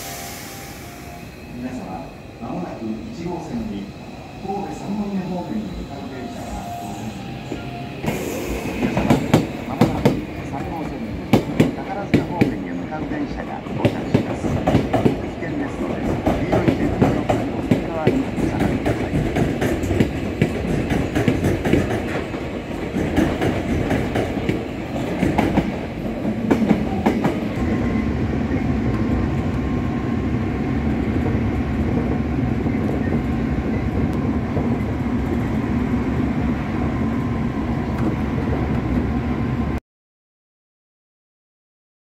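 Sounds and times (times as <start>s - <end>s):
train running noise: 0.0s - 39.8s
train wheels clacking over rail joints: 16.0s - 25.8s.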